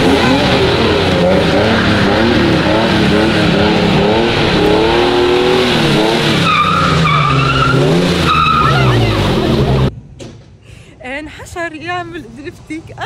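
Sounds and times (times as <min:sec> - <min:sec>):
car engine revving: 0:00.0 - 0:09.9
tyres screeching: 0:00.0 - 0:09.9.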